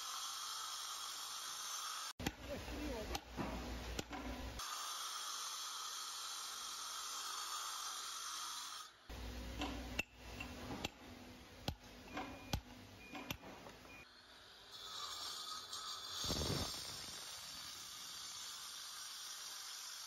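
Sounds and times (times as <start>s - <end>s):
angle grinder cutting stone: 0.0s - 3.3s, 4.0s - 9.0s, 14.2s - 20.0s.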